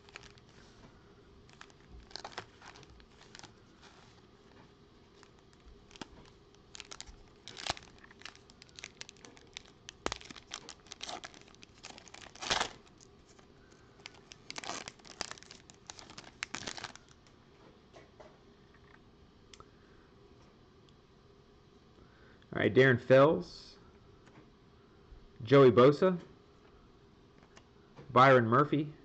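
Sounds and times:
foil wrapper tearing and crinkling: 0.0 - 0.6, 1.5 - 4.2, 5.1 - 17.2.

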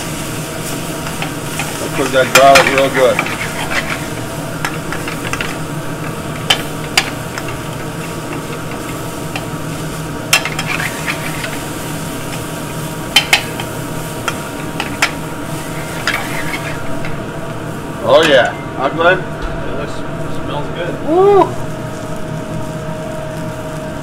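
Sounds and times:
meat sizzling in a pan: 0.0 - 18.5, 20.7 - 24.0
metal tongs clinking on pan: 1.0 - 3.9, 10.3 - 11.6
low hum: 16.7 - 23.3.

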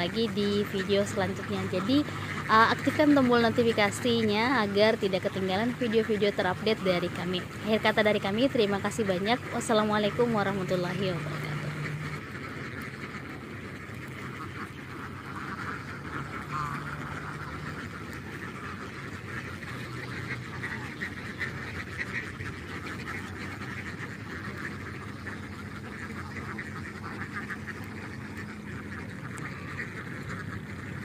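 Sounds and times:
flock of ducks quacking: 0.0 - 31.0.

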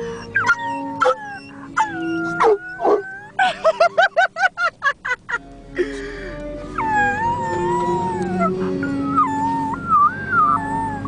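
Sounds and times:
dog howling: 0.2 - 3.4, 6.8 - 11.0
person howling: 6.8 - 8.6.

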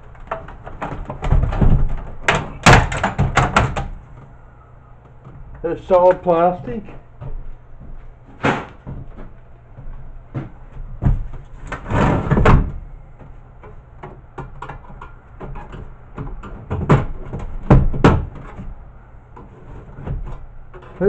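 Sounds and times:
metallic knocks and clunks: 0.2 - 4.0.

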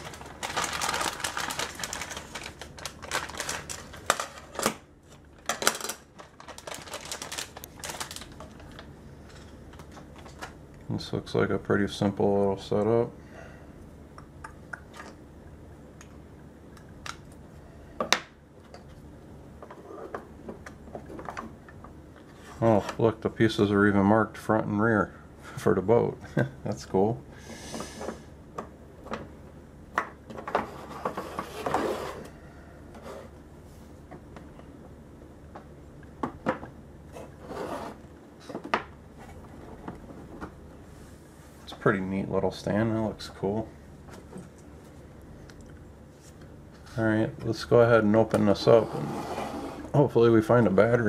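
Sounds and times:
short rubbing scrape: 30.7 - 32.3, 37.2 - 38.0, 48.8 - 49.9.

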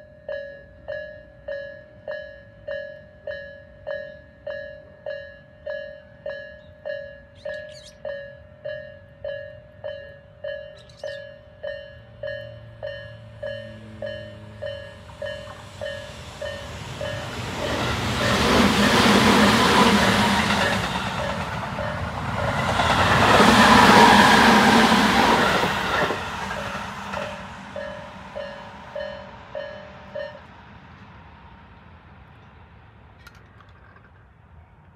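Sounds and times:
level crossing warning bell: 0.0 - 23.1, 26.5 - 30.5
electric train running noise: 0.6 - 31.2.

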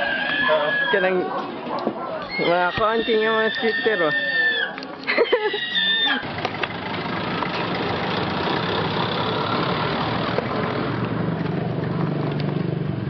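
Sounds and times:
skateboard wheels rolling on concrete: 5.8 - 13.0.

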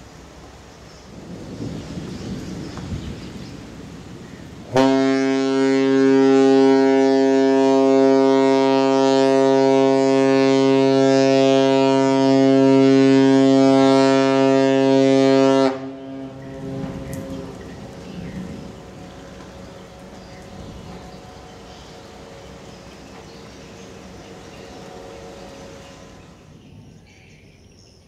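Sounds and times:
ship's horn blast: 4.7 - 18.0, 18.6 - 26.5.

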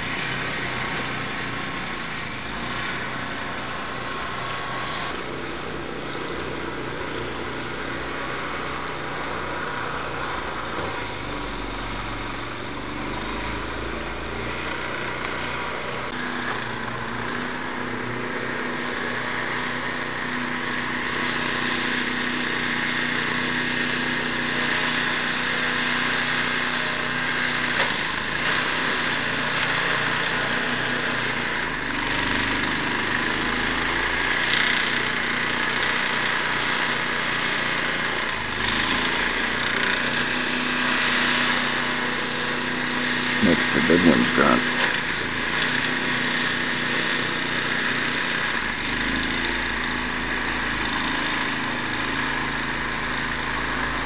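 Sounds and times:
snowblower engine running: 0.0 - 54.0.

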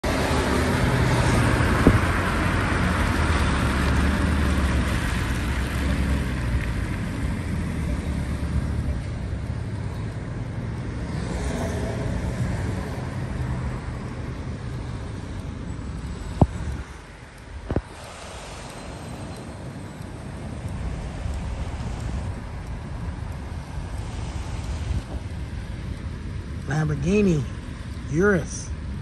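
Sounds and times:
car engine running low: 0.0 - 12.1
tyre hiss on wet road: 0.1 - 8.9, 16.1 - 26.6.

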